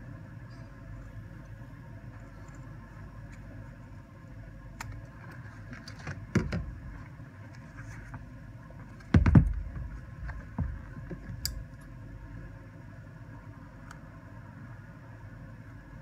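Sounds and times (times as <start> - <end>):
boot bumping on bench: 9.1 - 9.9.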